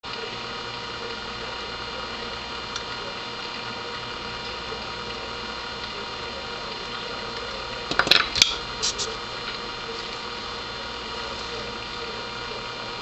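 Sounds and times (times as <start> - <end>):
steady hiss: 8.7 - 9.2.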